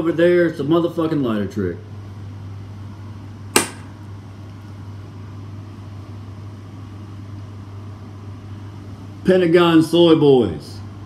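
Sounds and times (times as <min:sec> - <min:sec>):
ventilation fan running: 0:00.0 - 0:11.0.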